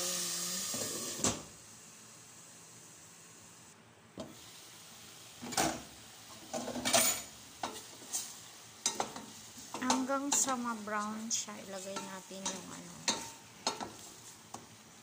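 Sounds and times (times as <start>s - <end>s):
chicken sizzling in oil: 0.0s - 3.0s, 4.3s - 15.0s.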